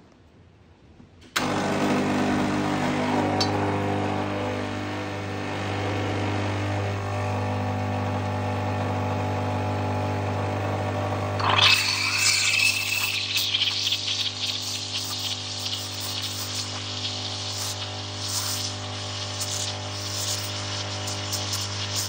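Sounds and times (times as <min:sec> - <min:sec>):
espresso machine pump humming: 0:01.4 - 0:22.0
coffee dripping: 0:11.4 - 0:22.0.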